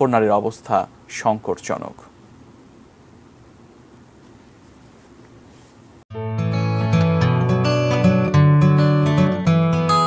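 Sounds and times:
faint background hiss: 0:00.0 - 0:06.0.

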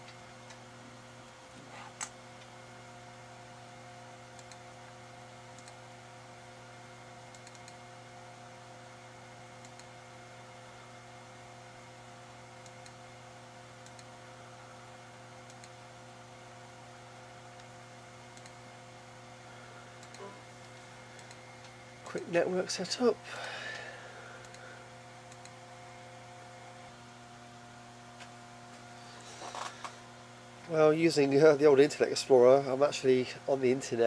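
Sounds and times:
low electrical hum: 0:00.0 - 0:34.0
faint mouse clicks: 0:04.4 - 0:04.6, 0:05.6 - 0:05.8, 0:09.6 - 0:09.9, 0:13.8 - 0:14.1, 0:15.4 - 0:15.8, 0:18.4 - 0:18.6.

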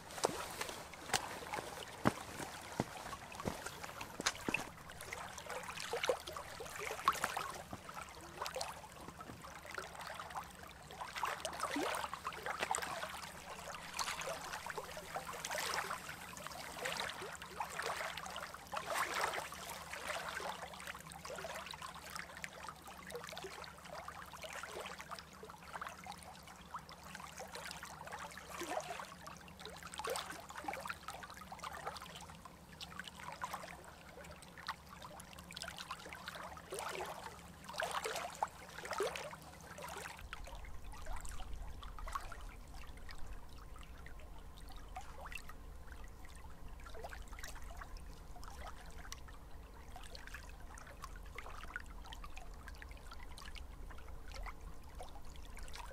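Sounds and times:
small waves lapping on rocks: 0:00.0 - 0:10.0.

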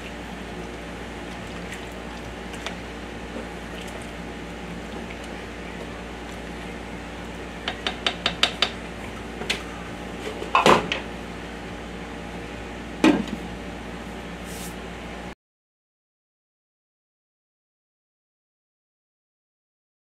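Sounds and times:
steady low hum: 0:00.0 - 0:15.4.

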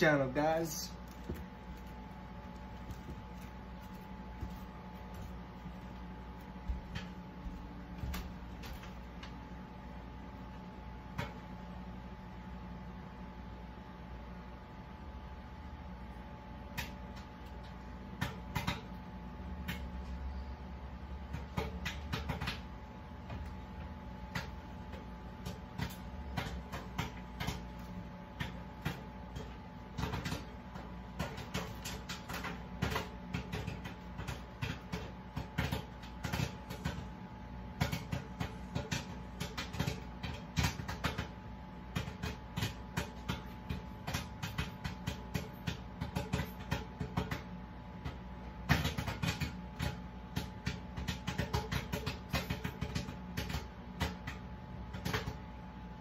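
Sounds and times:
microwave oven humming: 0:00.0 - 0:56.0
popcorn popping: 0:16.6 - 0:20.2, 0:21.2 - 0:55.8.

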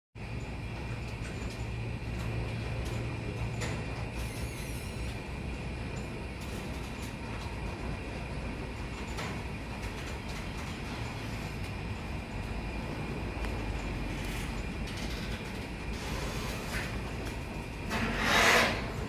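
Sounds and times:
low mechanical hum: 0:00.2 - 0:19.0.

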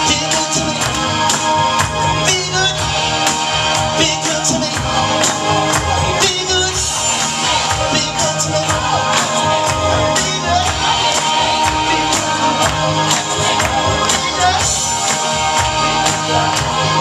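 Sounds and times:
person singing: 0:00.0 - 0:17.0
pop-rock song over speakers: 0:00.0 - 0:17.0.

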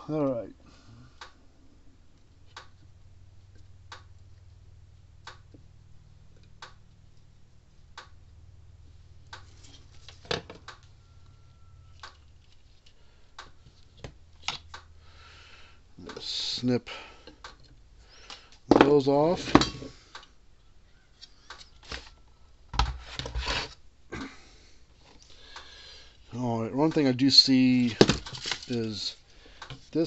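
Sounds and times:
low steady hum: 0:00.0 - 0:30.0
knocks of tools being handled: 0:18.7 - 0:20.0, 0:27.9 - 0:29.0.

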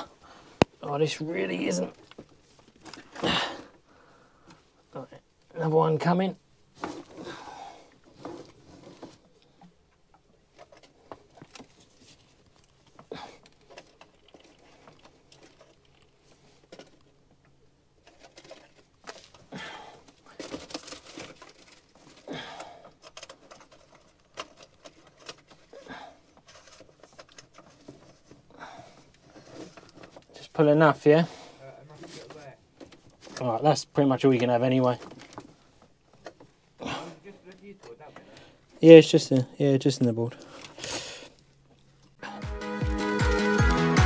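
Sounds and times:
cable rubbing and rustling: 0:08.0 - 0:09.4, 0:10.4 - 0:17.1, 0:18.0 - 0:22.3, 0:22.9 - 0:30.6, 0:31.8 - 0:33.7.

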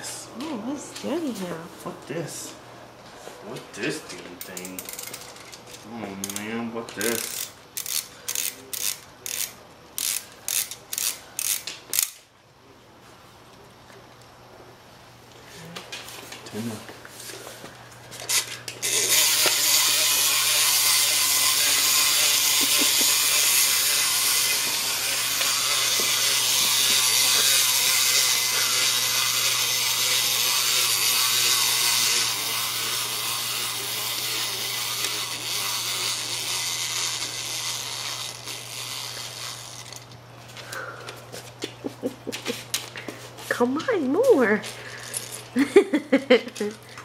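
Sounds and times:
toy mechanism whirring: 0:03.9 - 0:12.2, 0:18.2 - 0:40.8.

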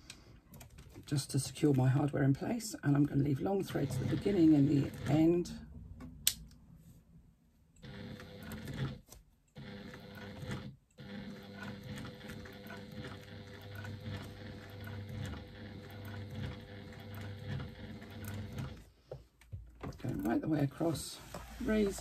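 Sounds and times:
sewing machine stitching: 0:02.9 - 0:05.6, 0:07.8 - 0:18.9, 0:19.9 - 0:22.0.

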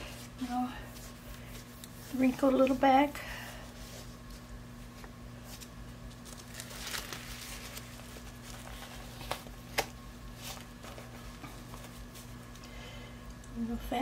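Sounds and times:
diaper rustling: 0:03.7 - 0:12.5.

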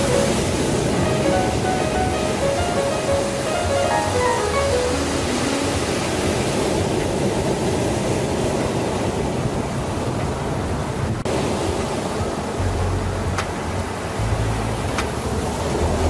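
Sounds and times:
small waves breaking on sand: 0:00.0 - 0:12.6.

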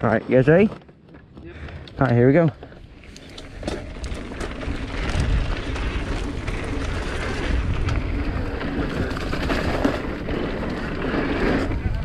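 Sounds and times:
bike rattles and clicks: 0:00.0 - 0:12.0
bike tyres rolling over dirt: 0:00.0 - 0:12.0
wind buffeting microphone: 0:03.3 - 0:12.0.

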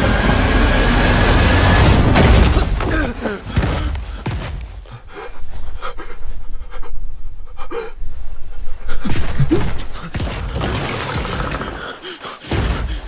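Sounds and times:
thuds and knocks: 0:02.2 - 0:05.0
man panting and gasping: 0:02.9 - 0:10.2, 0:11.6 - 0:13.0.

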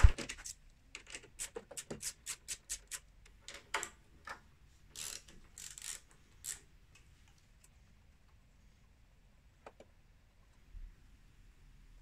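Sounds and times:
socket ratchet clicking: 0:05.0 - 0:06.6.

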